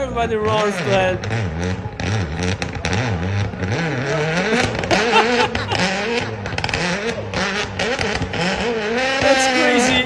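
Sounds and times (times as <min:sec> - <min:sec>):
car engine revving: 0:00.0 - 0:10.0
spectators shouting: 0:09.0 - 0:10.0.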